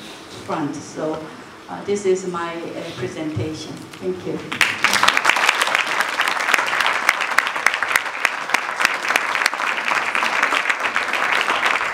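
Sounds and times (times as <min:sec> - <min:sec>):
audience applauding: 0:04.5 - 0:11.9.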